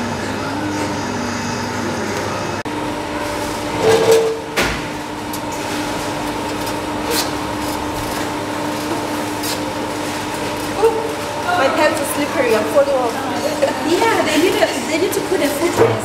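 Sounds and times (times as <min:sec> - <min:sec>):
steady background hum: 0:00.0 - 0:16.0
metal chair scraping on tiles: 0:03.3 - 0:04.5, 0:05.6 - 0:11.1.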